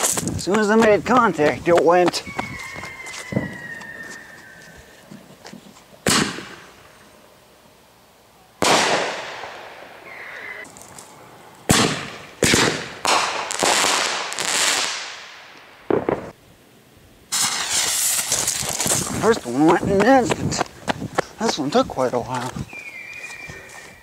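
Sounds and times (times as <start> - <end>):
fireworks bangs: 6.0 - 6.7, 8.6 - 10.7, 11.6 - 16.4, 17.3 - 20.7.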